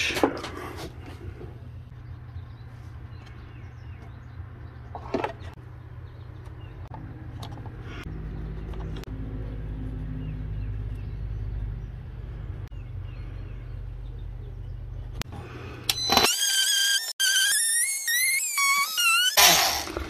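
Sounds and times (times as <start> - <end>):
vehicle engine rumble: 0.0 - 15.9.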